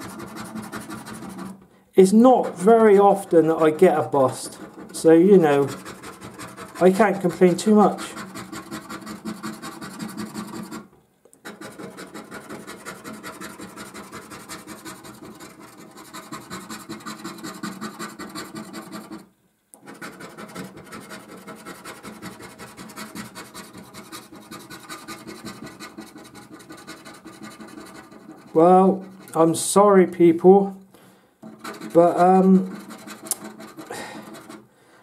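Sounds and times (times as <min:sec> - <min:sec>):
coin scraping a scratchcard: 0:11.4 - 0:19.2, 0:19.8 - 0:28.5, 0:31.4 - 0:34.6.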